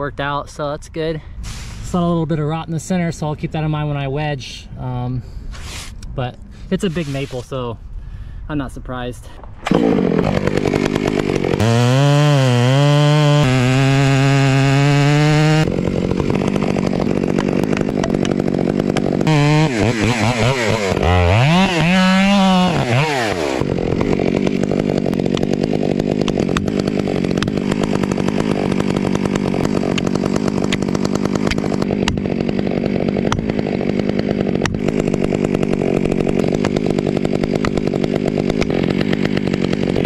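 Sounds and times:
chainsaw cutting wood: 9.5s - 40.0s.

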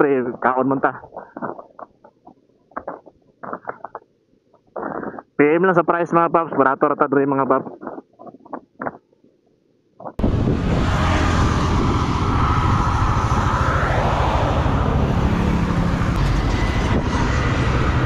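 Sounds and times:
high whine: 10.2s - 18.0s
road noise: 10.2s - 18.0s
wind rushing over microphone: 10.2s - 18.0s.

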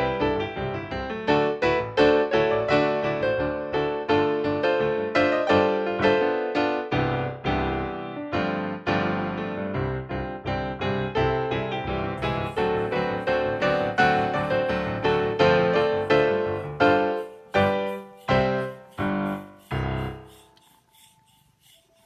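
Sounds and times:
gentle piano music: 0.0s - 20.6s.

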